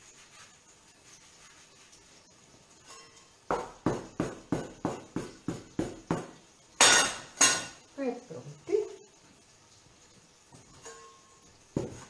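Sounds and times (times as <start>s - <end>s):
knife knocking on wooden board: 3.5s - 6.3s.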